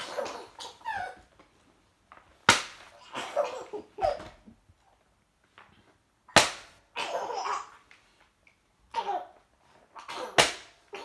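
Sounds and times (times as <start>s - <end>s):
baby laughing: 0.0s - 1.3s, 7.0s - 7.8s, 8.9s - 11.0s.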